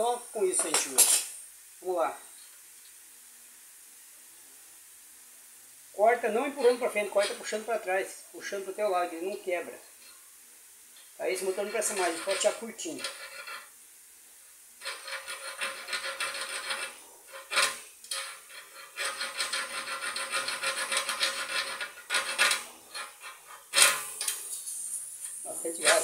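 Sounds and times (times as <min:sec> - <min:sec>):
gas hissing from pipe: 0:00.0 - 0:26.0
hacksaw cutting metal pipe: 0:11.4 - 0:13.7, 0:14.8 - 0:24.5.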